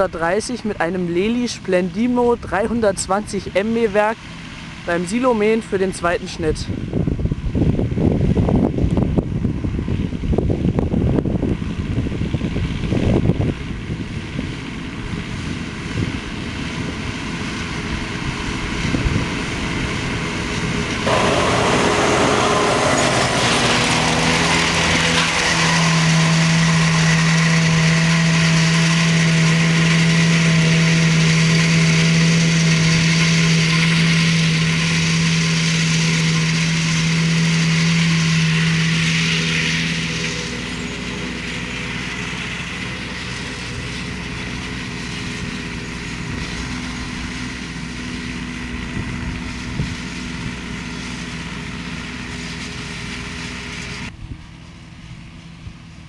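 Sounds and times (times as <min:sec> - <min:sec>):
tractor and mower running: 0:00.0 - 0:56.0
wind buffeting microphone: 0:06.4 - 0:28.9
high whine: 0:20.4 - 0:51.2.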